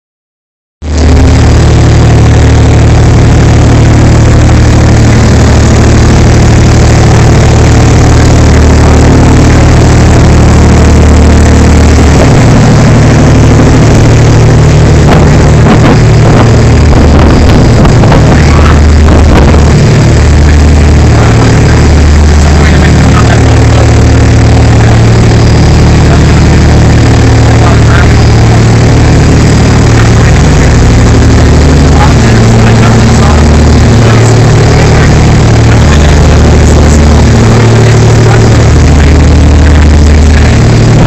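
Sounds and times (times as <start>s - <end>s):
motorboat engine running: 0.8s - 41.0s
water rushing from wake: 0.8s - 41.0s.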